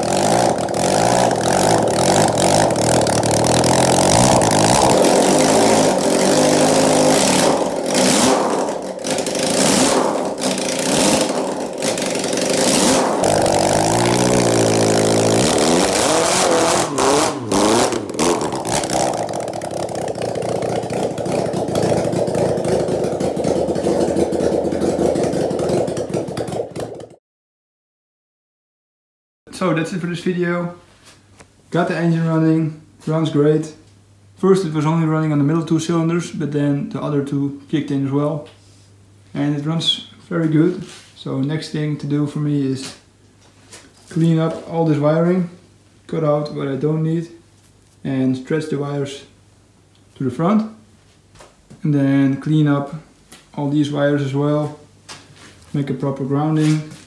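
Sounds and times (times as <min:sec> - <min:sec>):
engine running: 0:00.0 - 0:27.2.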